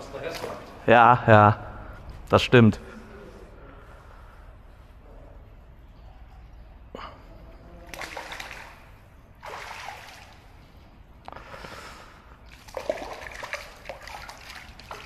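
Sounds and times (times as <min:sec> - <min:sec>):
fish splashing at water surface: 0:07.9 - 0:10.6, 0:12.5 - 0:15.0.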